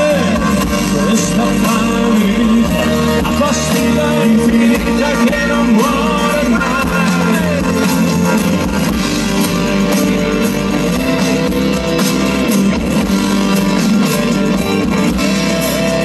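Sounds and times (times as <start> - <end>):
person singing: 0.0 - 8.8
bass guitar: 0.0 - 16.0
drum kit: 0.0 - 16.0
electric guitars: 0.0 - 16.0
keyboards: 0.0 - 16.0.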